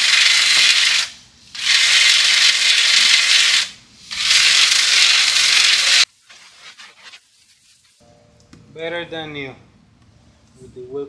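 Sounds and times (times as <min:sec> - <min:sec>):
hose nozzle spray hissing: 0:00.0 - 0:08.0.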